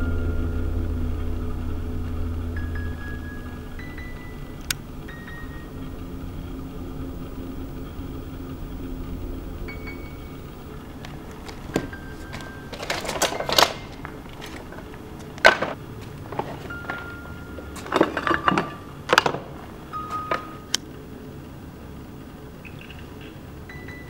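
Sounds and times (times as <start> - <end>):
low steady hum: 0.0 - 24.0
tools rummaged on workbench: 11.4 - 20.6
clinks and clatters: 11.4 - 20.7.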